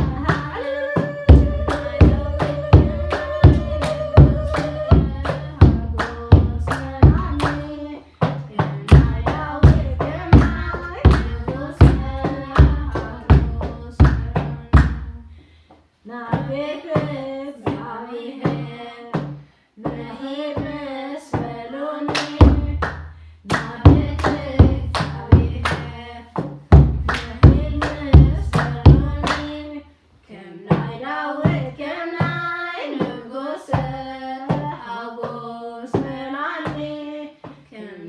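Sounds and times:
hand claps: 0:00.0 - 0:15.0, 0:22.1 - 0:29.6
woman and children singing hymn: 0:00.0 - 0:15.3, 0:16.0 - 0:22.8, 0:23.5 - 0:38.0.

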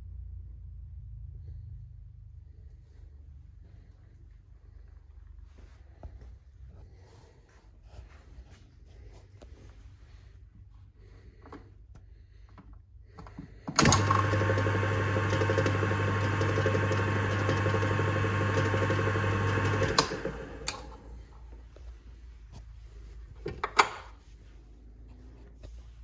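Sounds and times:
metal lathe motor humming: 0:13.8 - 0:21.1
lathe switch click: 0:19.4 - 0:21.0.

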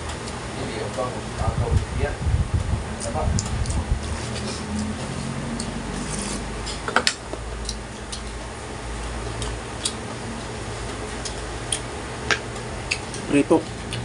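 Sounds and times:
steady low hum: 0:00.0 - 0:14.0
chewing and mouth smacks: 0:07.6 - 0:08.4, 0:09.3 - 0:10.0, 0:11.1 - 0:11.9.

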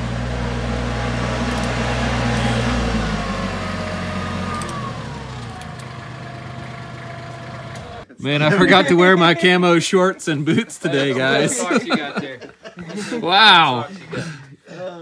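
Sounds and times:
tractor engine running: 0:00.0 - 0:09.4.

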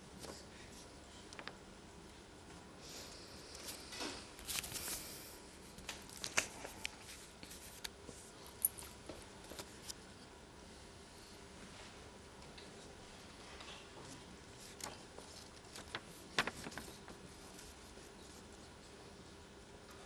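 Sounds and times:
paper rustling: 0:04.4 - 0:05.2, 0:14.6 - 0:18.5.

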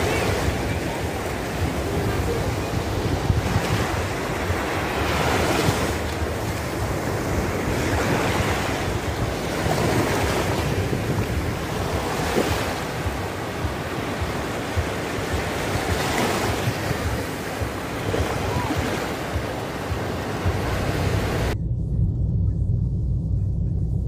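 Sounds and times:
waves breaking on sand: 0:00.0 - 0:21.6
wind buffeting microphone: 0:00.0 - 0:24.0.

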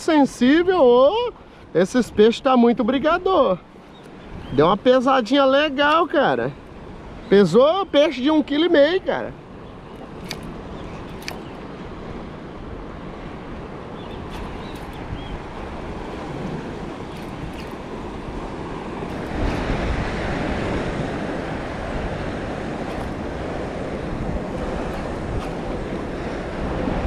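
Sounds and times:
water lapping: 0:03.3 - 0:27.0
wind buffeting microphone: 0:08.4 - 0:27.0
faint clicks: 0:10.0 - 0:11.5.

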